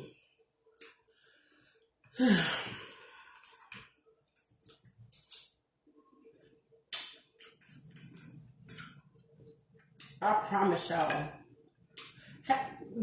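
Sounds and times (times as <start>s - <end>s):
woman sighing: 2.1s - 3.0s.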